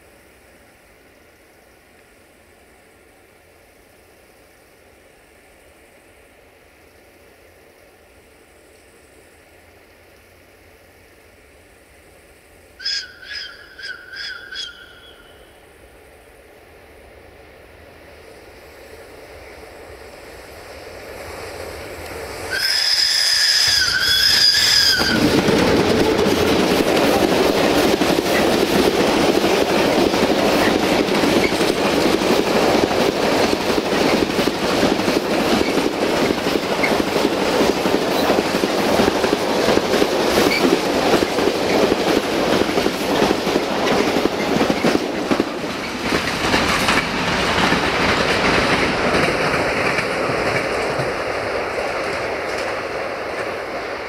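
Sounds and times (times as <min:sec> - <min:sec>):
locomotive whistle: 0:12.8 - 0:15.6, 0:22.5 - 0:25.3
train wheels clacking over rail joints: 0:22.0 - 0:54.0.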